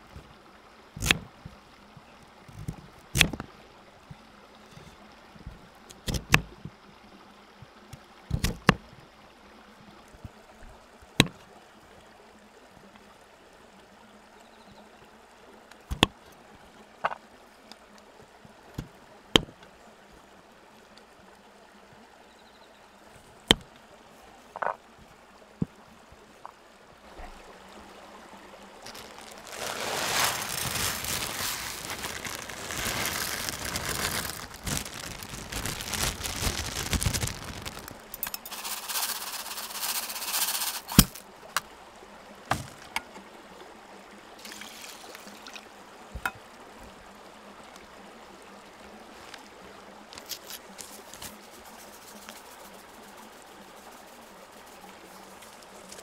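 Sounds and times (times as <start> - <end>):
faint steady hiss: 0.0 - 56.0
water pouring into metal tin: 28.8 - 41.2, 44.4 - 45.6.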